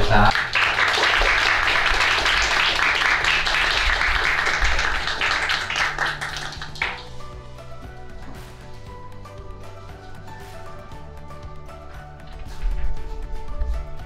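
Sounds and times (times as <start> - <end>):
audience applauding: 0.0 - 7.1
soft background music: 0.0 - 14.0.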